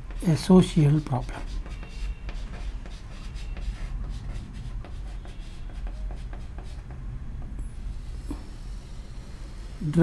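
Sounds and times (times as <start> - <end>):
chalk scratching on chalkboard: 0.0 - 7.0
steady low hum: 2.3 - 10.0.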